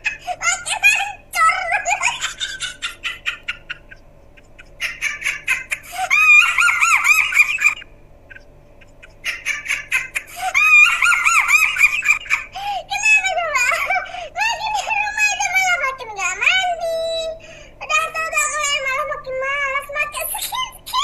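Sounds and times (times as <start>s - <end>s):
high-pitched laughter: 0.0s - 17.2s, 17.9s - 21.0s.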